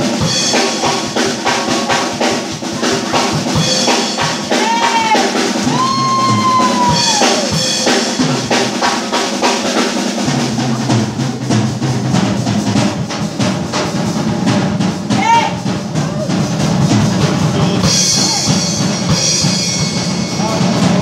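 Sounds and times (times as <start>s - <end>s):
bass guitar: 0.0s - 8.4s
drum kit beat: 0.0s - 21.0s
rock band playing: 0.0s - 21.0s.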